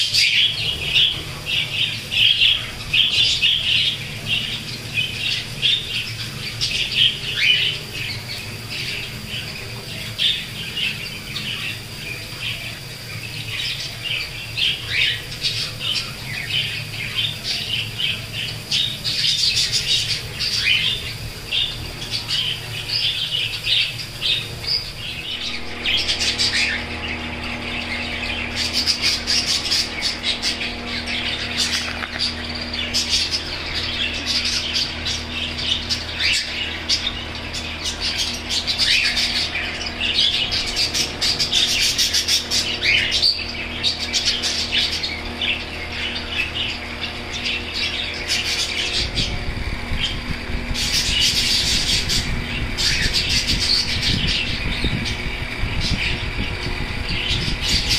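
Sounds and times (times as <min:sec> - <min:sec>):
budgerigars chattering: 0:00.0 - 0:57.9
steady low hum: 0:00.0 - 0:57.9.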